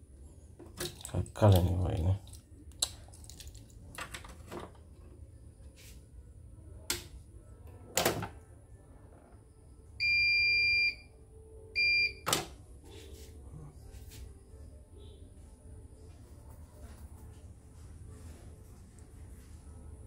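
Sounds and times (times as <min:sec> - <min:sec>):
machine beeps: 0:10.0 - 0:11.1, 0:11.8 - 0:12.3.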